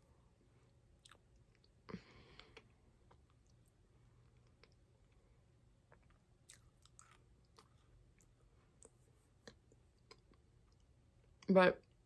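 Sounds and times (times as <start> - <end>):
chewing crunches: 1.0 - 1.7, 5.9 - 10.2.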